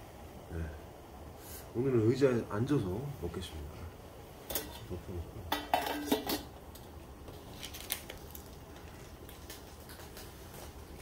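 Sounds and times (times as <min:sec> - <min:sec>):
metal lid clinking on pot: 0:05.5 - 0:06.5.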